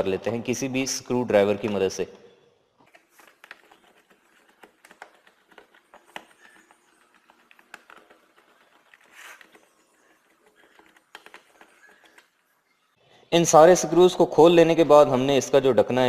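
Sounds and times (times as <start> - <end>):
screwdriver clicks and scratches: 2.8 - 12.4.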